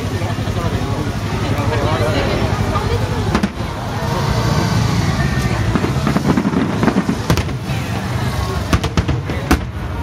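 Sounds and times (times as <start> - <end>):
background rumble: 0.0 - 10.0
crowd chatter: 0.0 - 10.0
firework shells bursting: 5.7 - 7.9.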